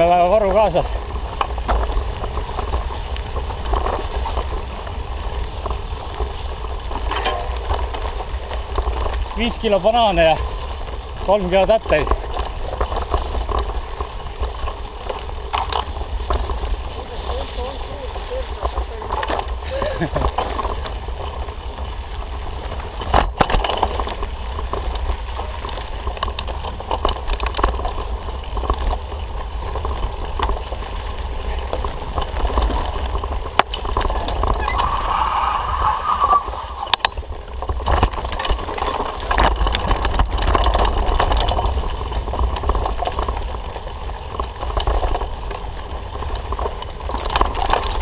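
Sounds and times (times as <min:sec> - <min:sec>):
bike knocks and rattles: 0:00.0 - 0:34.7, 0:36.9 - 0:48.0
bike tyre noise on dirt: 0:00.0 - 0:48.0
wind rumbling on microphone: 0:00.0 - 0:48.0.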